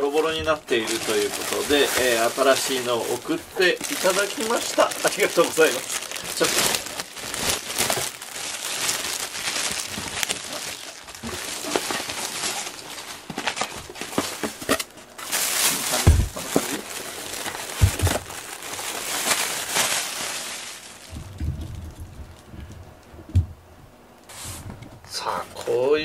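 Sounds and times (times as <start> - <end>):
plastic wrapping crinkling: 0.0 - 23.1
dull thumps: 16.0 - 16.7, 17.7 - 18.3.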